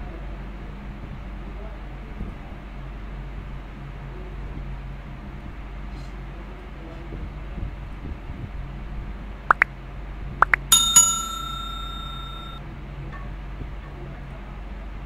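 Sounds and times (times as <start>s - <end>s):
small bell ringing: 10.7s - 12.6s.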